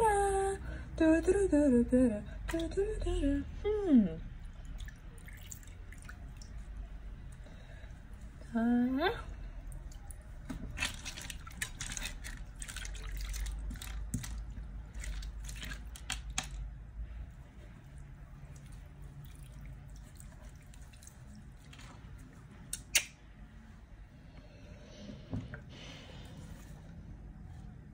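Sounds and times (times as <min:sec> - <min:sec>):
wet squelching and dripping: 0:04.4 - 0:07.5, 0:09.6 - 0:16.6, 0:17.8 - 0:23.2.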